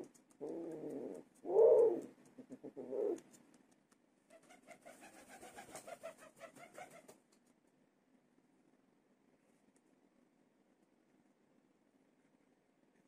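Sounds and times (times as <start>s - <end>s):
pigeon cooing: 0.0s - 3.3s.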